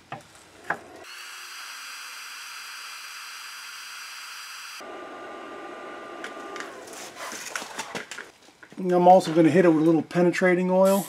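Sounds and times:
induction heater hiss and whine: 0:00.0 - 0:08.2
lower steady whine: 0:00.4 - 0:07.7.

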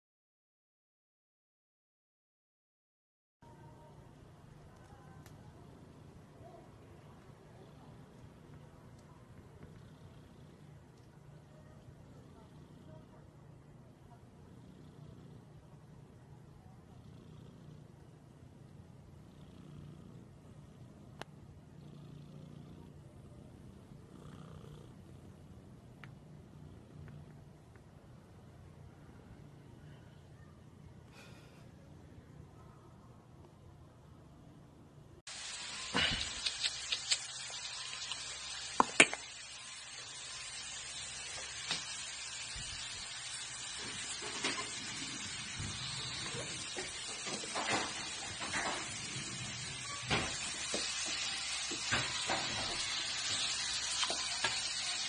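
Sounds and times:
cat purring: 0:04.6 - 0:30.6.

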